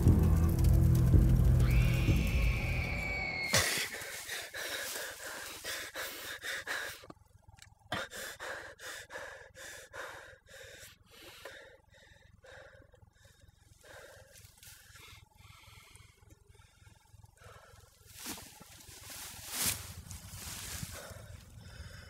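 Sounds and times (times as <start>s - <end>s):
loud high tone: 1.4s - 3.7s
man gasping for breath: 3.6s - 7.1s, 7.9s - 16.2s, 20.7s - 22.0s.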